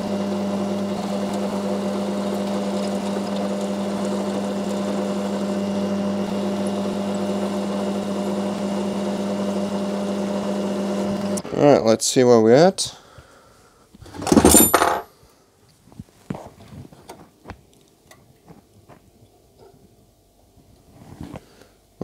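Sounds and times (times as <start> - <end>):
metal lathe humming: 0.0 - 11.4.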